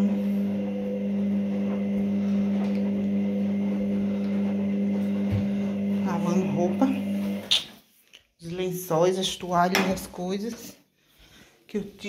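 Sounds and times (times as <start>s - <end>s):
washing machine humming: 0.0s - 7.6s.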